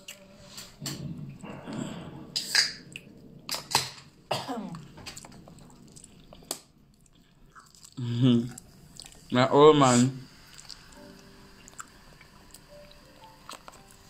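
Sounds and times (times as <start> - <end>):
chewing: 4.7 - 9.3, 10.4 - 14.0.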